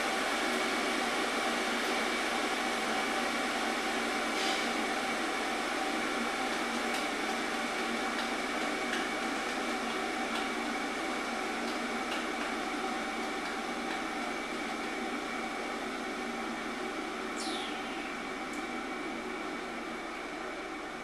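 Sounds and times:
faint hum: 0:17.1 - 0:21.0.

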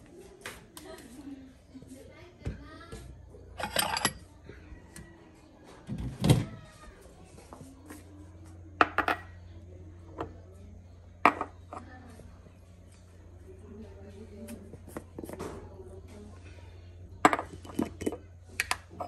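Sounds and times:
ceramic bowl clinking against dishes: 0:03.6 - 0:04.2
bowl and jar knocking on tiled counter: 0:08.8 - 0:09.3, 0:11.2 - 0:11.8, 0:17.2 - 0:18.7.

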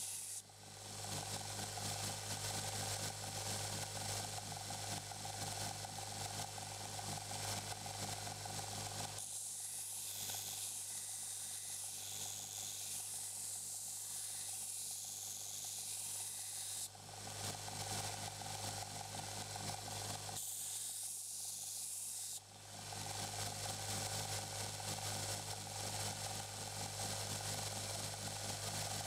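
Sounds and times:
blade grinding hiss: 0:00.0 - 0:00.4, 0:09.2 - 0:16.9
belt grinder motor humming: 0:08.4 - 0:16.9.

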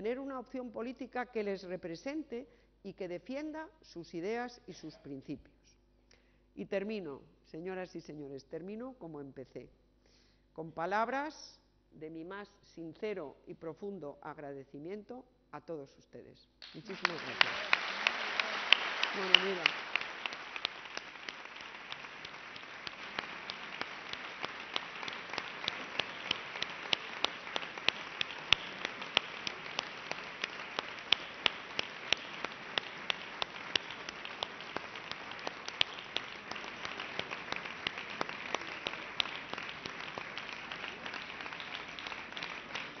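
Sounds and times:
audience applauding: 0:16.6 - 0:43.0
individual sharp claps close by: 0:16.6 - 0:43.0.

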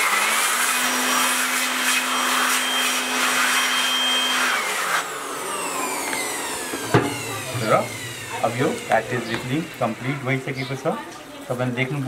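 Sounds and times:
electric air blower running: 0:00.0 - 0:12.0
motor spinning down: 0:02.0 - 0:11.3.

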